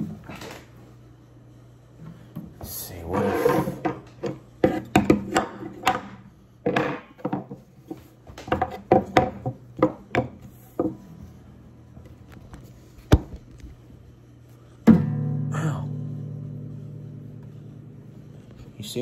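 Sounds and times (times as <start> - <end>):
coasters shifting on wooden table: 2.9 - 11.1
guitar body being bumped: 14.8 - 15.4.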